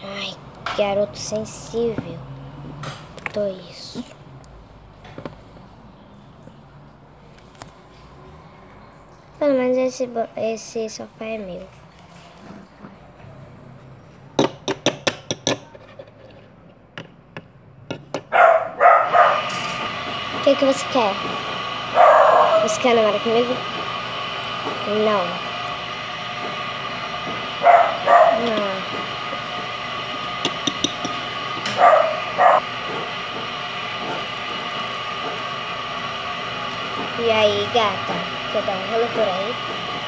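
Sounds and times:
dog barking: 18.3s - 19.5s, 22.0s - 22.6s, 27.6s - 28.4s, 31.8s - 32.6s
steady hum: 18.4s - 40.0s.

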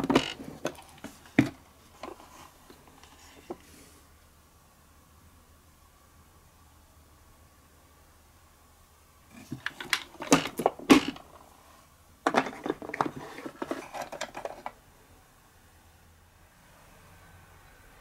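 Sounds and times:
plastic clatter: 0.0s - 3.6s, 9.4s - 11.4s, 12.2s - 14.8s.

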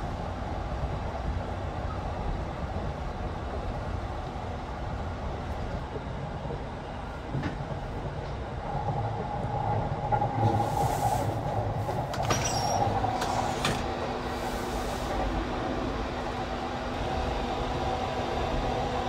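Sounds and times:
train running rumble: 0.0s - 19.0s
sliding door clicks: 12.1s - 13.9s.

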